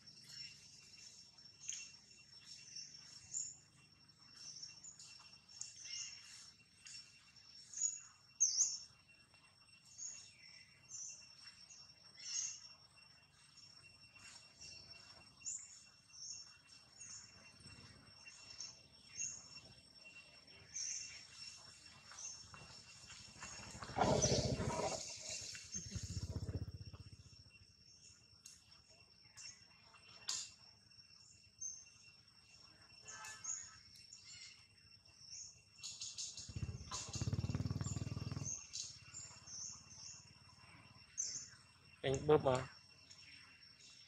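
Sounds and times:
bird chirps: 0.0 - 30.6, 31.2 - 44.0
high insect drone: 0.0 - 44.0
high bird chirps: 23.3 - 27.4.

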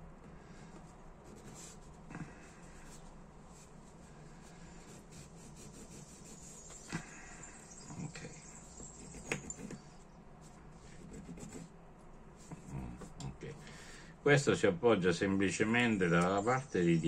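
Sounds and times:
low steady hum: 0.0 - 17.0
fingers rubbing small parts: 4.9 - 7.1, 7.7 - 10.0.

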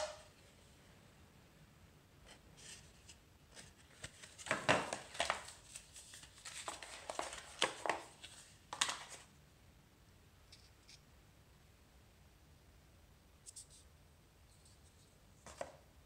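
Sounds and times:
cardboard and paper rustling: 2.6 - 9.3.

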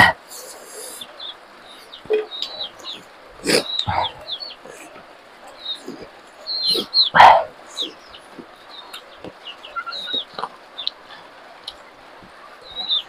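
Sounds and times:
high bird chirps: 0.8 - 11.0, 12.6 - 13.0
dog barking: 2.9 - 8.0.

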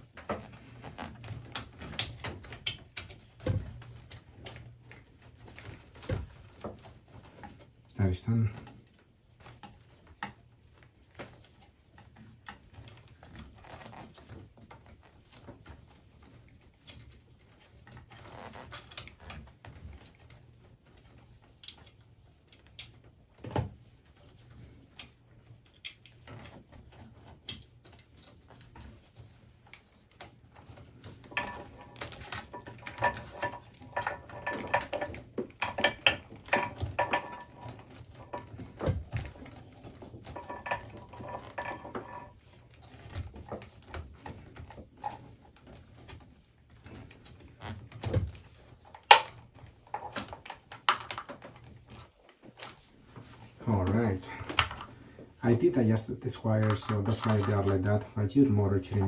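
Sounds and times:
wires and connectors scraping and clicking: 0.0 - 59.0.

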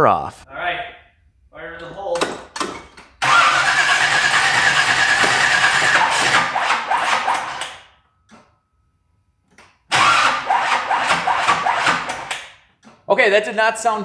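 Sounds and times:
engine starter cranking: 2.2 - 8.6, 9.5 - 13.0.

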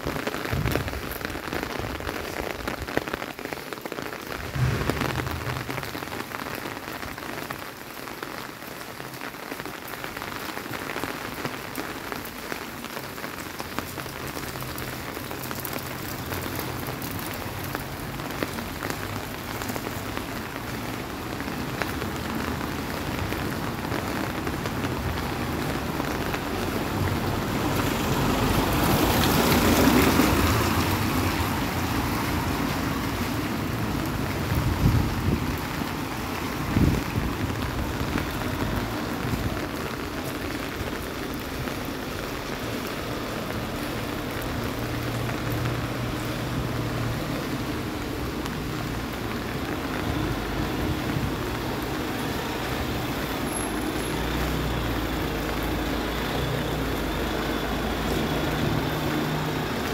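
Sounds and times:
rain pattering on stone: 0.0 - 59.9
loud rushing: 4.3 - 7.0.

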